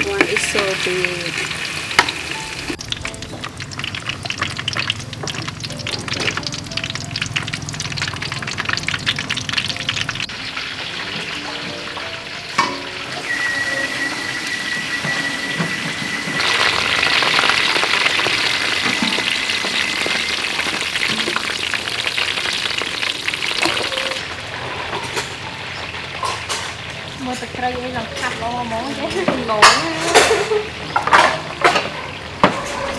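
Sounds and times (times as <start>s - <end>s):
crabs deep-frying in hot oil: 0.0s - 32.9s
thin high whine: 13.1s - 17.1s.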